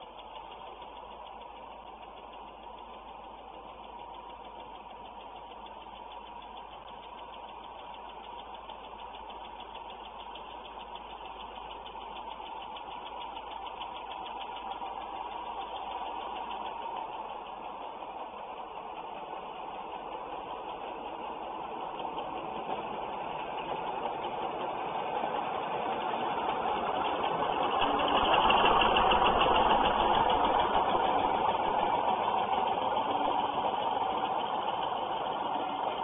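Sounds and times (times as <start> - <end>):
diesel locomotive engine running: 0.0 - 36.0.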